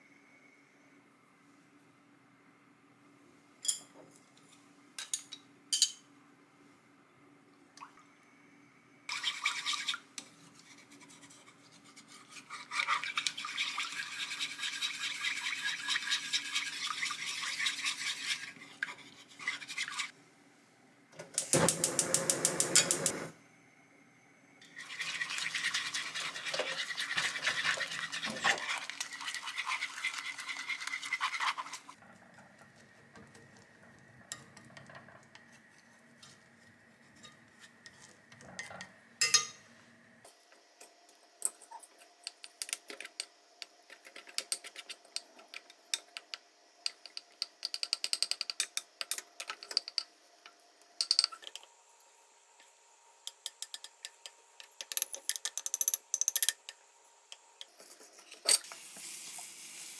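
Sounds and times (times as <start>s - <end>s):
spatula scraping pan: 9.1s - 20.1s, 24.7s - 32.0s
egg sizzling in frying pan: 58.6s - 59.9s.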